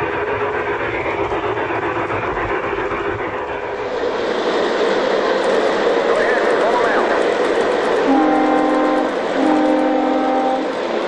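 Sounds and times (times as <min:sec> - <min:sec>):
model train wheels clattering on rail: 0:03.9 - 0:11.0.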